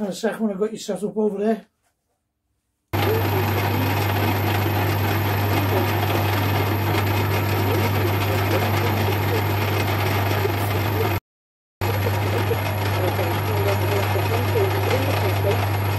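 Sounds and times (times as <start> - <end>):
metal lathe running: 3.0 - 11.2, 11.8 - 15.9.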